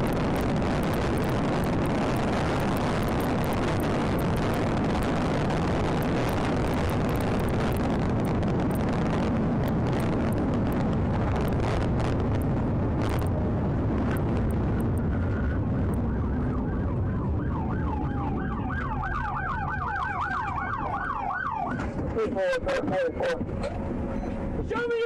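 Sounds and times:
wind and road noise: 0.0 - 25.0
police siren wailing and yelping: 15.1 - 22.0.

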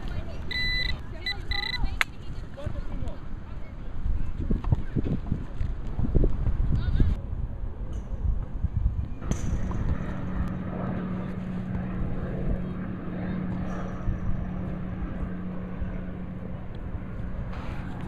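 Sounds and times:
outdoor background noise: 0.0 - 18.0
steady low hum: 0.0 - 18.0.

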